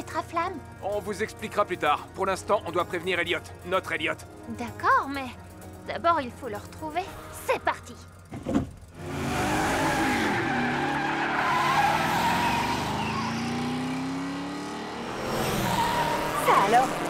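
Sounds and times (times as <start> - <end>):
cartoon car engines revving: 8.8 - 17.0
tyre squeal: 9.7 - 13.9, 15.4 - 16.9.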